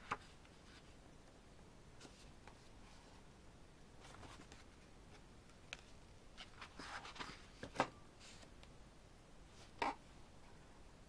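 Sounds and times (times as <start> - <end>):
paper pages rustling: 4.0 - 8.5.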